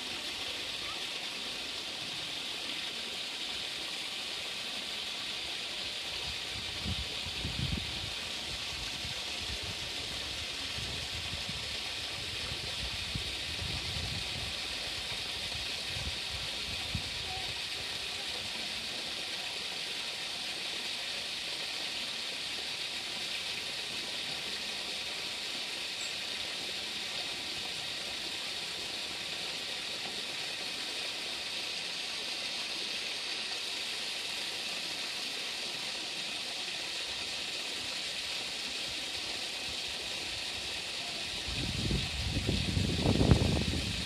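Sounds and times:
steady hiss: 0:00.0 - 0:44.0.

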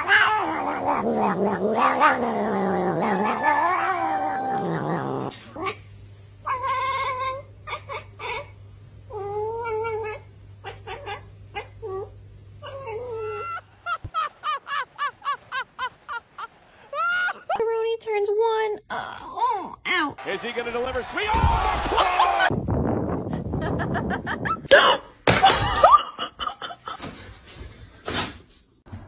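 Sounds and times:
cat yowling: 0:00.0 - 0:05.3, 0:09.1 - 0:13.6.

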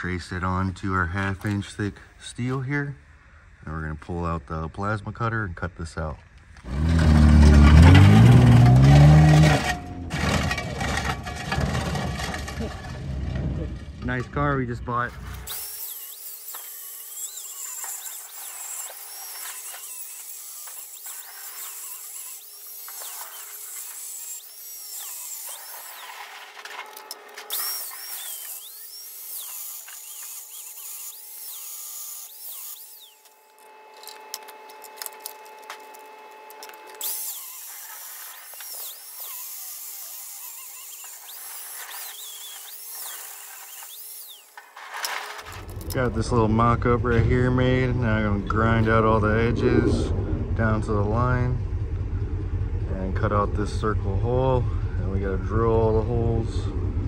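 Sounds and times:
angle grinder grinding steel: 0:06.6 - 0:13.0, 0:14.2 - 0:47.9.

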